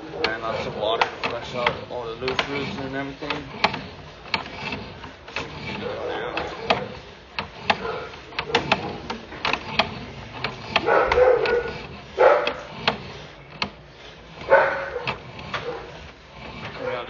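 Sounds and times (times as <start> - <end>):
cable clicking: 0.0 - 17.0
dog barking: 7.8 - 8.7, 10.8 - 12.7, 14.5 - 15.9.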